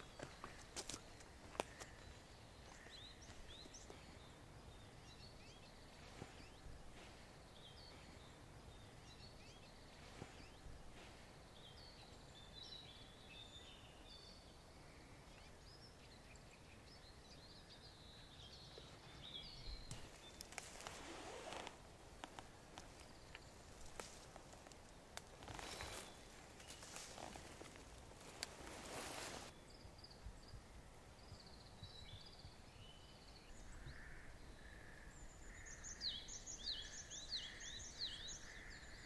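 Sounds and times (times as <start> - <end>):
footsteps on dirt path: 0.0 - 4.1, 19.8 - 29.5
small birds chirping: 0.0 - 39.0
rustle of leaves: 18.9 - 29.7.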